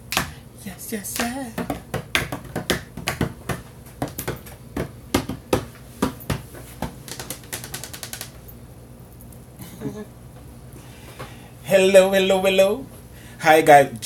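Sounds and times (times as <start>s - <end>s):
faint room hum: 0.0s - 14.0s
sharp irregular clicks: 7.1s - 8.4s.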